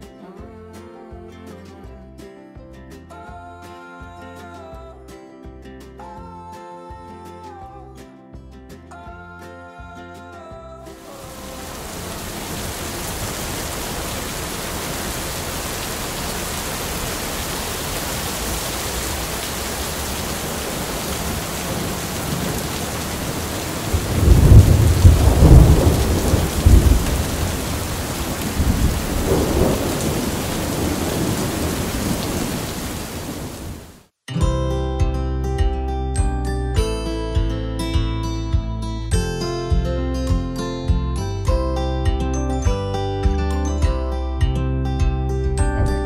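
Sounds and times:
heavy rain: 0:11.0 - 0:34.1
thunder rolling: 0:11.3 - 0:33.9, 0:45.7 - 0:46.0.

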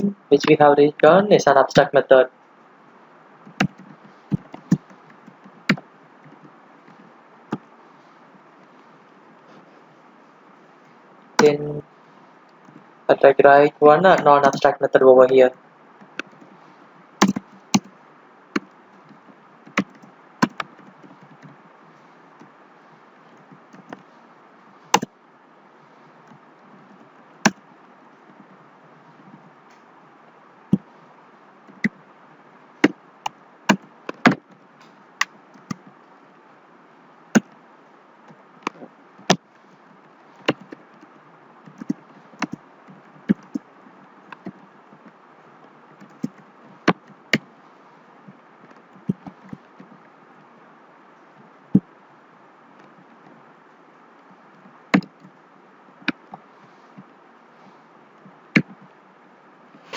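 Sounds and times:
keyboard keys clicking: 0:03.5 - 0:06.5, 0:17.2 - 0:17.9, 0:19.7 - 0:21.5.

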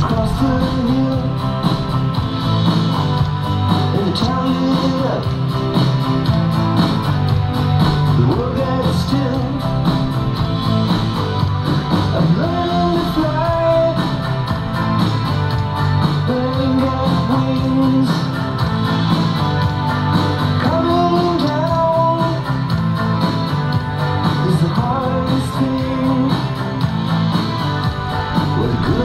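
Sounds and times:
person singing: 0:00.0 - 0:02.1, 0:03.8 - 0:05.5, 0:08.0 - 0:10.4, 0:11.9 - 0:14.8, 0:16.0 - 0:18.5, 0:20.6 - 0:22.6, 0:24.3 - 0:26.6, 0:28.4 - 0:29.0
rock music with guitar: 0:00.0 - 0:29.0.

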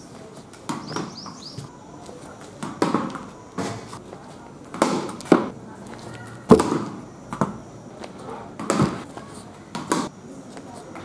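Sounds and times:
tennis ball bouncing on concrete: 0:00.4 - 0:01.7, 0:02.4 - 0:10.1
ball hitting cricket bat: 0:00.6 - 0:01.4, 0:02.6 - 0:04.0, 0:04.7 - 0:05.6, 0:06.4 - 0:07.6, 0:08.6 - 0:10.1
small bird chirping: 0:00.8 - 0:01.8.

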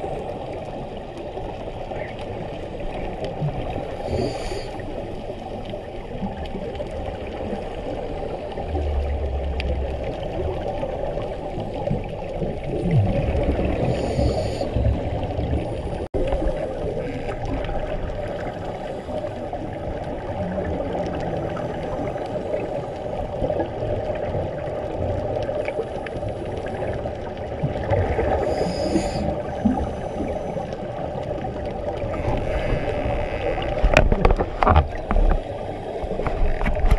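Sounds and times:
underwater bubbling rumble: 0:00.0 - 0:36.9
regulator breathing hiss: 0:04.0 - 0:04.8, 0:13.9 - 0:14.8, 0:28.4 - 0:29.4.

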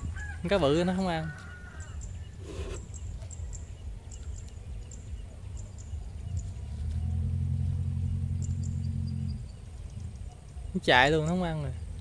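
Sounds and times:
low wind rumble: 0:00.0 - 0:12.0
low engine drone: 0:05.2 - 0:10.6.

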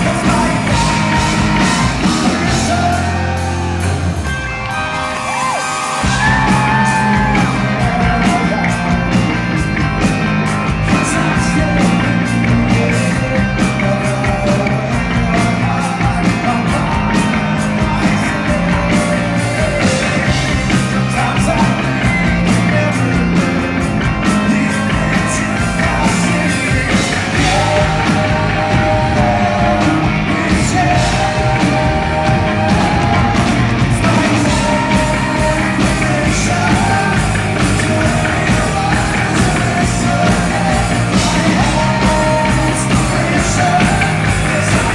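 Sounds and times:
man singing: 0:00.0 - 0:04.0, 0:06.0 - 0:44.9
drums: 0:00.0 - 0:44.9
electric guitar: 0:00.0 - 0:44.9
live rock band: 0:00.0 - 0:44.9.

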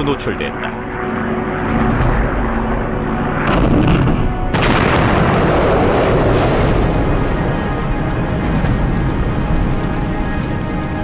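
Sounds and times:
documentary music: 0:00.0 - 0:11.0
bomb explosion: 0:03.4 - 0:09.8.

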